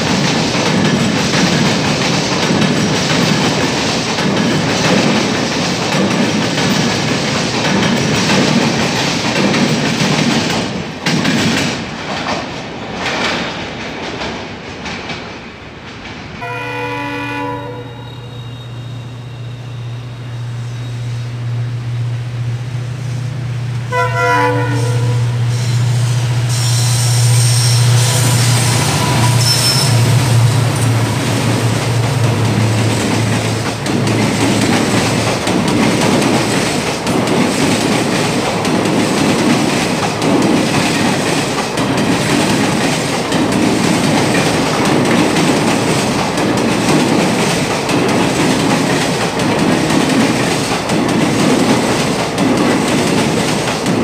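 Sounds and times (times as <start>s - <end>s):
train coaches clattering over points: 0.0s - 16.5s, 23.7s - 54.0s
locomotive horn blasts: 16.4s - 20.0s, 23.9s - 25.6s.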